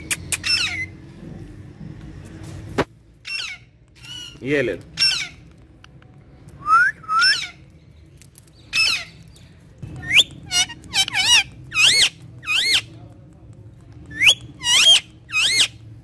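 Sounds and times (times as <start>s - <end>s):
parakeet giving high calls: 0.4s - 0.9s, 3.2s - 5.4s, 7.2s - 7.6s, 10.0s - 12.9s, 14.1s - 15.8s.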